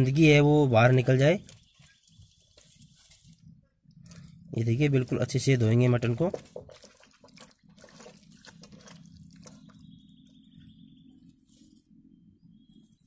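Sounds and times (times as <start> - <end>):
low steady hum: 0.0 - 13.0
meat squelching in water: 5.7 - 10.6.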